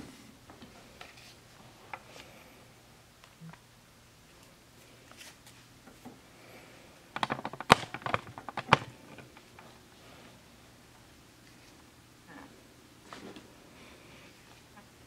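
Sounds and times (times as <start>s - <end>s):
mechanical clicks and rattles: 7.2s - 9.6s.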